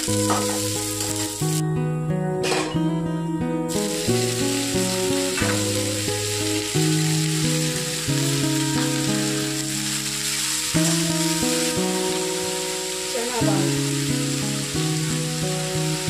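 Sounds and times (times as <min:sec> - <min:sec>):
oil sizzling: 0:00.0 - 0:16.0
plucked background music: 0:00.0 - 0:16.0
greens tipped into pan: 0:02.4 - 0:02.8.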